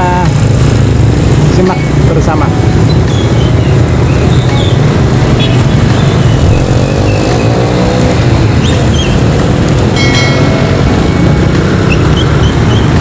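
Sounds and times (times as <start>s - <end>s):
motorcycles passing by: 0.0s - 13.0s
high tone: 9.9s - 13.0s.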